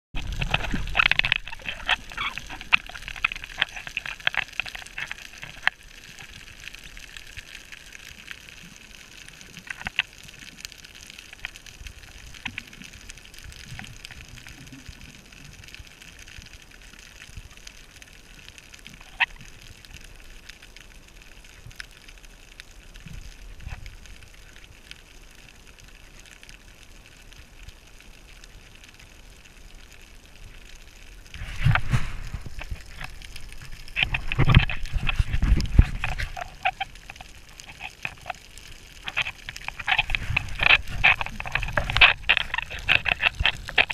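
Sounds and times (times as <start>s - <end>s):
faint low gurgling rumble: 0.2s - 43.9s
sharp clicks and crackles: 0.2s - 43.9s
underwater hiss: 31.1s - 36.6s.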